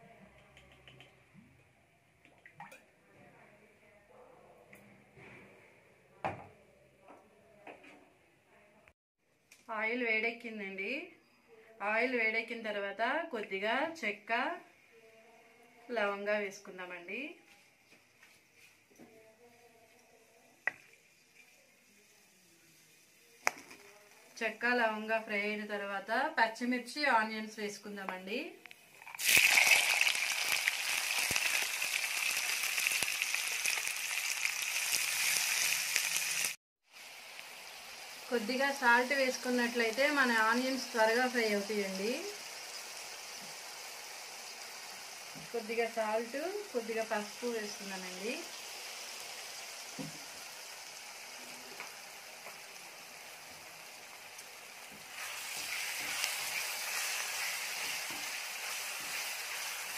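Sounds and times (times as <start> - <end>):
onions sizzling in hot oil: 20.5 - 25.8, 28.3 - 59.9.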